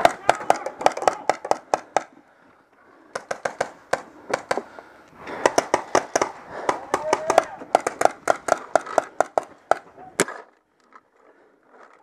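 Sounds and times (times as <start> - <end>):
paintball markers firing: 0.0 - 2.2, 3.1 - 10.6.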